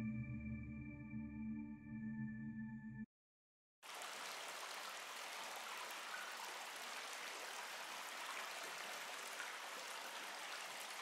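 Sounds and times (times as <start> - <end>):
water trickling: 3.9 - 11.0.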